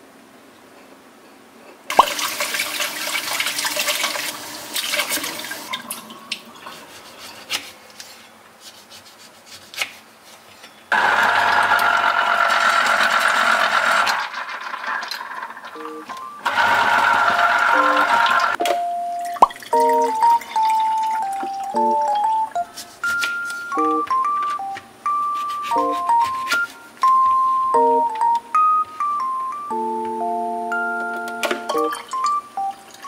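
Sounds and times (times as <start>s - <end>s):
juicer motor humming: 10.9s - 18.6s.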